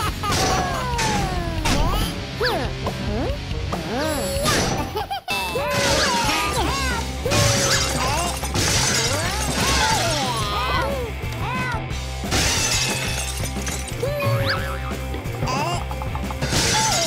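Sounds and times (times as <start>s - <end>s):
washing machine crunching and shattering: 7.5s - 10.0s, 12.3s - 13.9s.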